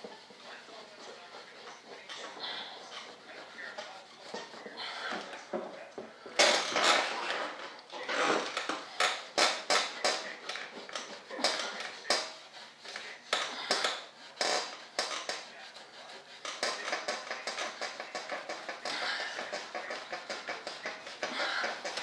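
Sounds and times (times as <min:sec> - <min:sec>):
hand rubbing and scrubbing surface: 0:00.0 - 0:22.0.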